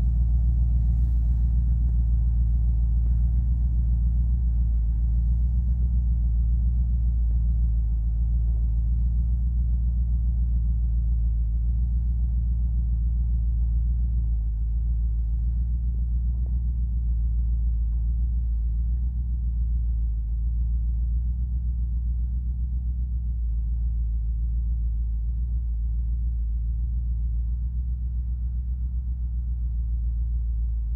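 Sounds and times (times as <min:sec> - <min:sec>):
truck engine idling: 0:00.0 - 0:24.2.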